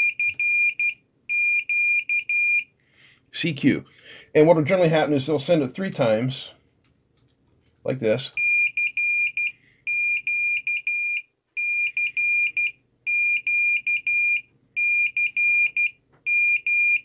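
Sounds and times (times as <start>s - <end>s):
buzzer beeping morse code: 0.0s - 2.7s, 8.4s - 17.0s.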